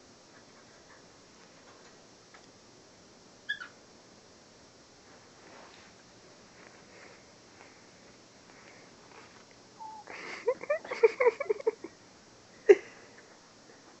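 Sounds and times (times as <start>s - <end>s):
person laughing: 10.1s - 12.0s, 12.6s - 13.2s.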